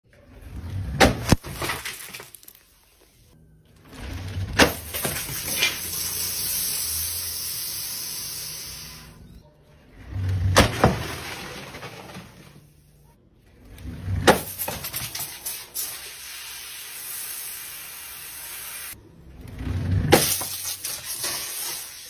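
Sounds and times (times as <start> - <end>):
plastic bottle rolling on concrete: 3.7 - 6.5, 9.9 - 12.7.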